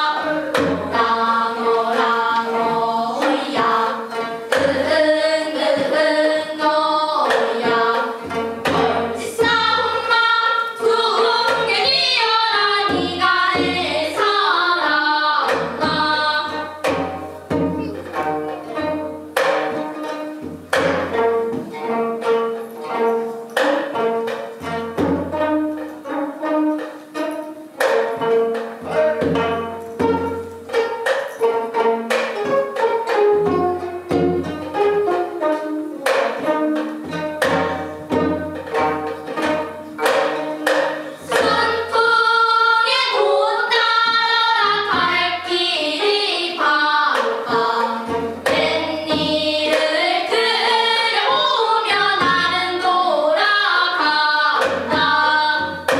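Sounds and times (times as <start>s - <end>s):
plucked zither ensemble: 0.0s - 55.9s
young people singing together: 0.0s - 55.9s.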